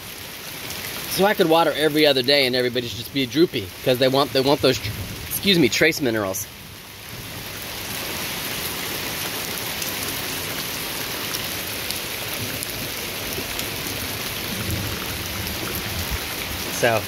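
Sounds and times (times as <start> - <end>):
heavy rain on plants: 0.0 - 17.0.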